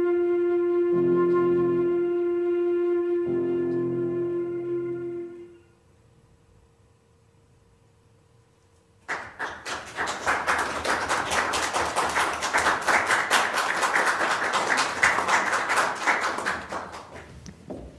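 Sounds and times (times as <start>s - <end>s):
audience applauding: 9.0s - 17.3s.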